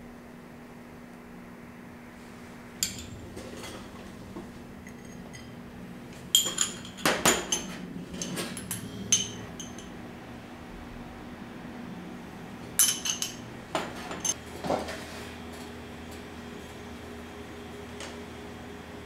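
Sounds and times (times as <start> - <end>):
dishes and utensils clinking: 2.8 - 5.6, 6.3 - 9.9, 12.8 - 14.4.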